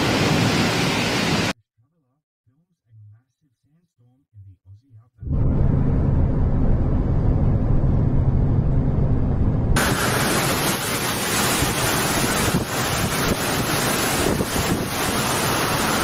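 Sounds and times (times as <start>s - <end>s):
wind driving heavy rain: 0.0s - 1.5s, 9.8s - 16.0s
low rumble: 5.2s - 10.6s.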